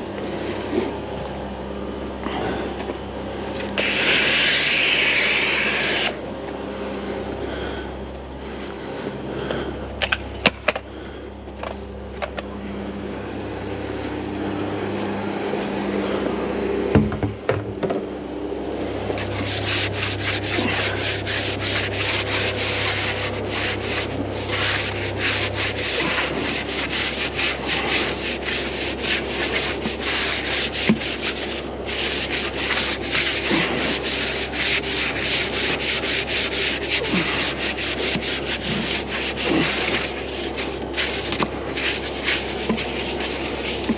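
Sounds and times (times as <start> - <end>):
steady low hum: 0.0 - 43.9
brush scrubbing wheel: 3.8 - 6.2, 19.1 - 43.9.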